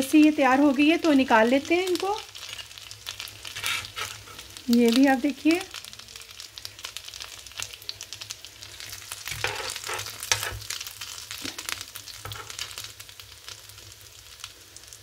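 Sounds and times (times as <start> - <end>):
food sizzling in oil: 0.0 - 15.0
spatula scraping a pan: 2.4 - 4.6, 8.8 - 10.8.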